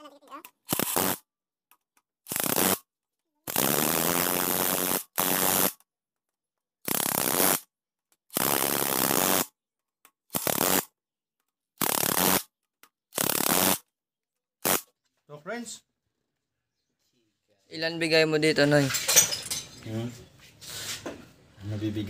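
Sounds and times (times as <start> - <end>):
power wrench spinning socket: 10.3 - 10.8, 11.8 - 12.4.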